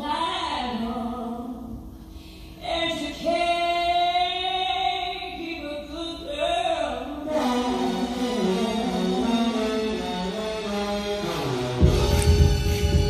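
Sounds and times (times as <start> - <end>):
woman singing: 0.0 - 1.8, 2.6 - 7.4
band playing: 7.3 - 13.0.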